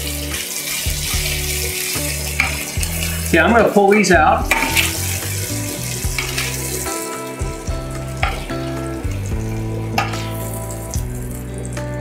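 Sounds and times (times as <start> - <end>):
meat sizzling in a skillet: 0.0 - 12.0
metal tongs clicking on pan: 2.4 - 3.0, 4.5 - 5.0, 8.2 - 8.6, 10.0 - 10.4.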